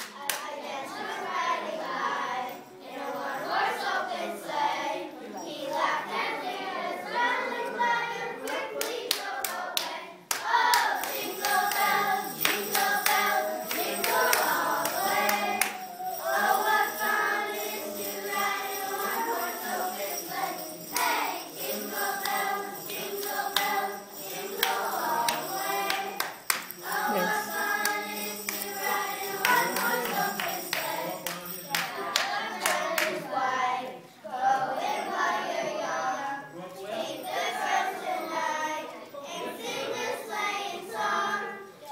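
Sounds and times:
girls singing a carol: 0:00.0 - 0:41.9.

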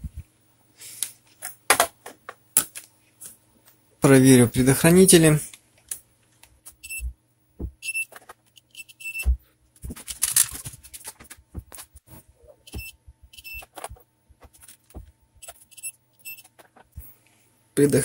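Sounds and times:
multimeter short high beeps: 0:06.8 - 0:07.1, 0:08.8 - 0:09.3.

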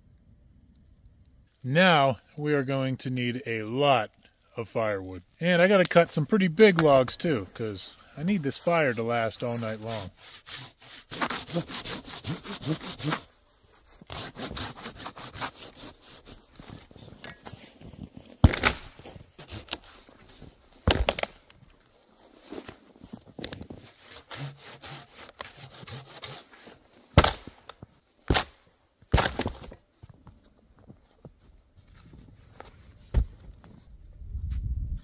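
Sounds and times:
hand saw cutting log: 0:09.4 - 0:13.3, 0:14.0 - 0:16.8, 0:19.3 - 0:20.1, 0:23.8 - 0:27.4
logs knocking and thudding: 0:18.4 - 0:19.7, 0:20.8 - 0:21.5, 0:29.1 - 0:30.4, 0:33.1 - 0:33.7.

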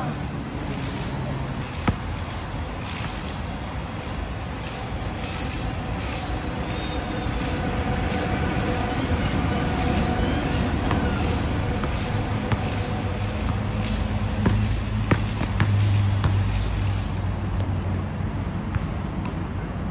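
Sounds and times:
rhythmic pulsing hiss: 0:00.0 - 0:17.3
basketball bouncing: 0:01.7 - 0:03.4, 0:10.2 - 0:17.7.

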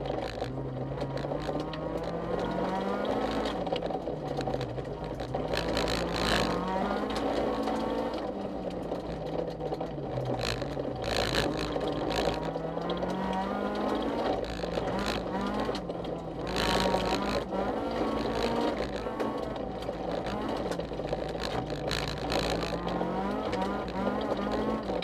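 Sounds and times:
car engine revving: 0:00.0 - 0:25.0
tyre and road noise: 0:00.0 - 0:25.0.

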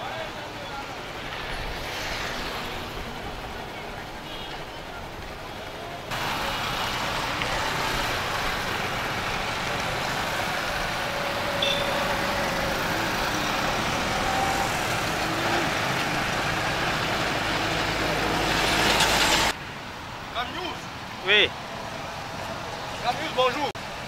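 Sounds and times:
traffic driving over steel bridge: 0:00.0 - 0:24.0.

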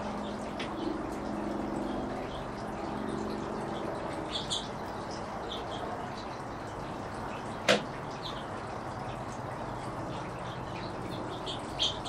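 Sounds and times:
finches chirping: 0:10.1 - 0:12.0.

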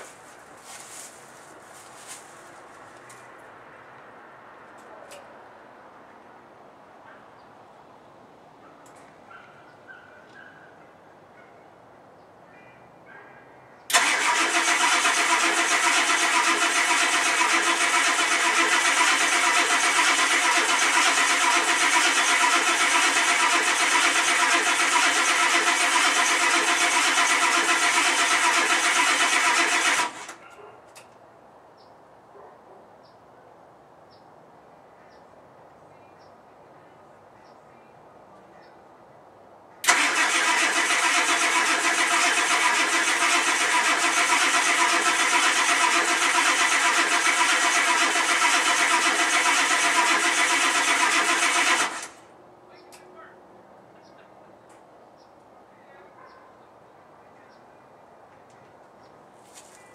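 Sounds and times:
diesel engine starter cranking: 0:13.9 - 0:30.4, 0:39.8 - 0:52.2.

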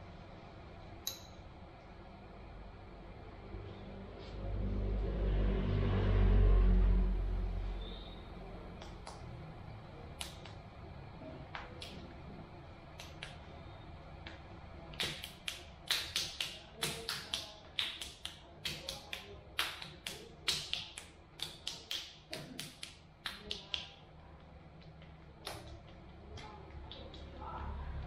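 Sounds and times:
hands slapping a head: 0:15.0 - 0:23.9.

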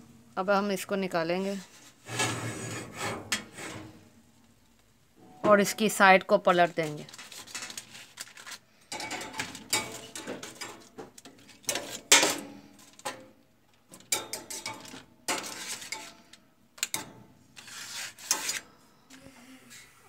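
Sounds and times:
metal tongs clattering on foil tray: 0:06.5 - 0:18.6.

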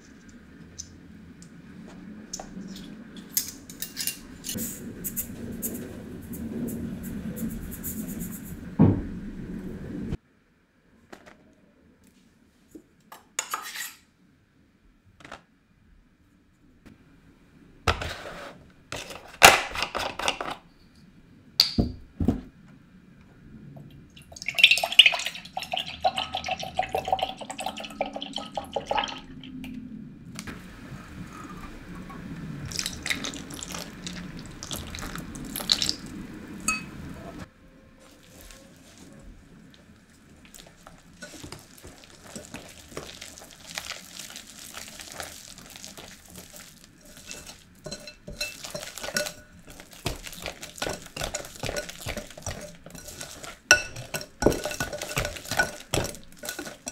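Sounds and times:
liquid pouring into glass: 0:24.2 - 0:29.4, 0:32.7 - 0:36.1
glass clink ringing: 0:36.7 - 0:36.9.

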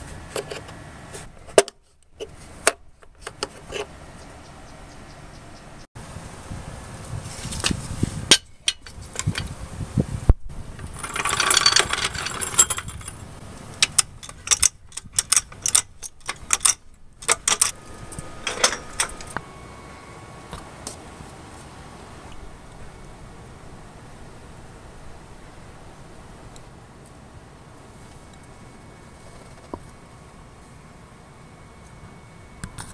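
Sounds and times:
scraping rustle: 0:07.0 - 0:09.6
sharp metallic clicks and clunks: 0:10.8 - 0:13.2, 0:13.8 - 0:19.4.

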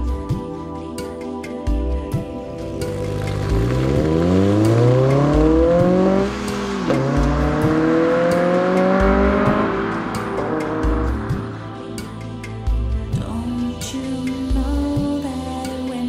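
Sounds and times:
background music with beat: 0:00.0 - 0:16.0
car engine accelerating hard: 0:02.9 - 0:11.8.

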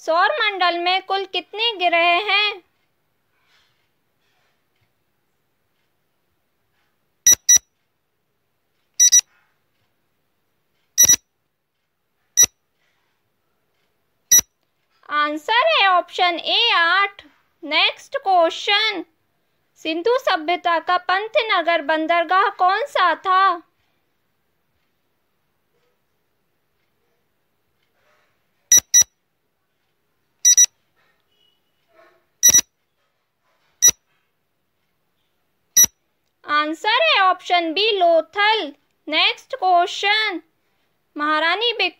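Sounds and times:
short high electronic beeps: 0:07.3 - 0:07.6, 0:09.0 - 0:09.2, 0:11.0 - 0:11.2, 0:28.7 - 0:29.1, 0:30.5 - 0:30.7, 0:32.4 - 0:32.7.

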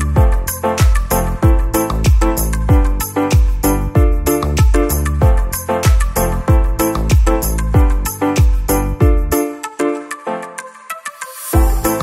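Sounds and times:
kick drum beat: 0:00.2 - 0:09.3, 0:11.6 - 0:12.0.

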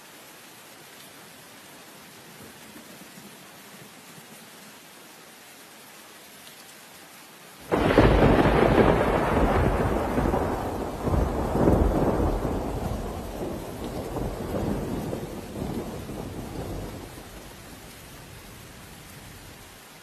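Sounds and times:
heavy rain hissing: 0:00.0 - 0:20.0
thunder clap and rumble: 0:07.7 - 0:17.6.

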